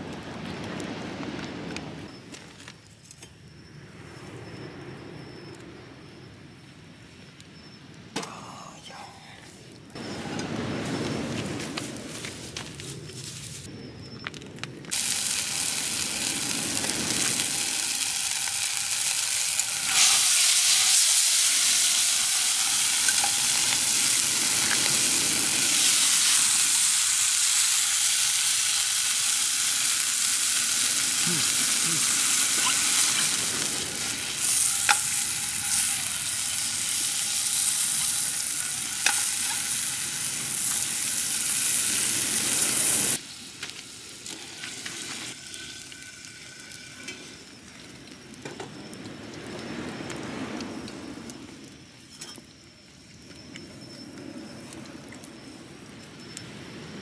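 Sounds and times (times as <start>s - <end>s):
food sizzling in a frying pan: 14.9s - 49.0s.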